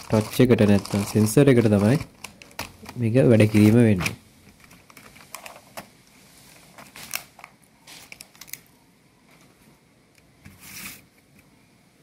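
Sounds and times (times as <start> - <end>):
plastic sheet crinkling: 0.0 - 4.0, 4.6 - 8.7
plastic keyboard parts clicking: 0.0 - 5.9.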